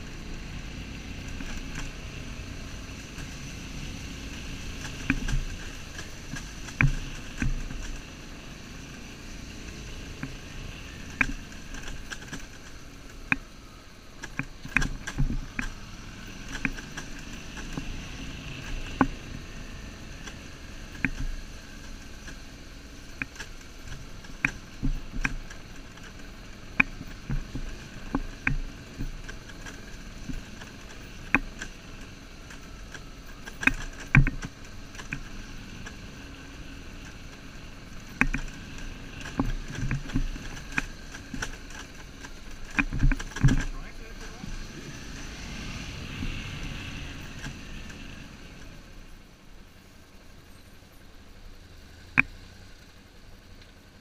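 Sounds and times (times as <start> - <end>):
knocks and rattles over stones: 3.0 - 8.3, 9.6 - 19.5, 23.1 - 48.8.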